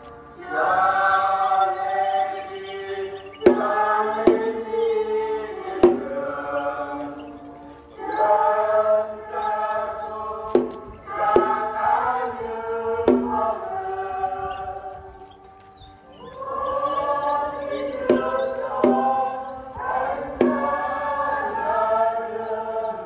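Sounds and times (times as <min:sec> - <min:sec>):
choir singing a hymn: 0:00.0 - 0:23.0
sharp knocks: 0:03.5 - 0:04.6, 0:10.6 - 0:11.7, 0:13.1 - 0:13.5, 0:18.1 - 0:19.3.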